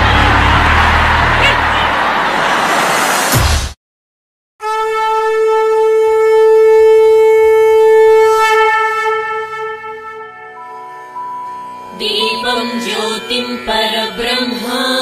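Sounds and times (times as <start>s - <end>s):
conch shell blown: 4.6s - 11.9s.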